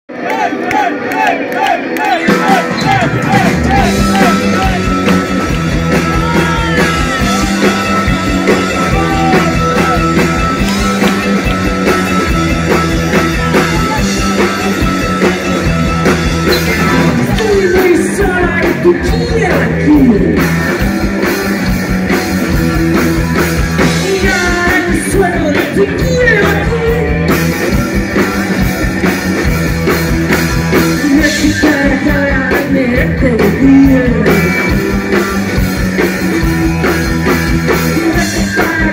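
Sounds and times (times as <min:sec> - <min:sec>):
bass guitar: 0:00.0 - 0:38.9
drums: 0:00.1 - 0:38.9
electric guitar: 0:00.1 - 0:38.9
woman singing: 0:23.9 - 0:27.2, 0:31.0 - 0:34.8, 0:37.9 - 0:38.9.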